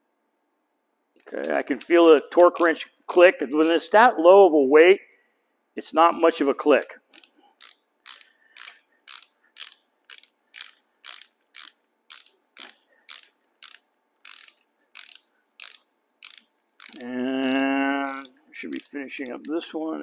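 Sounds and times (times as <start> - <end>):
torque wrench ratchet clicking: 1.4 - 4.0, 7.1 - 19.5.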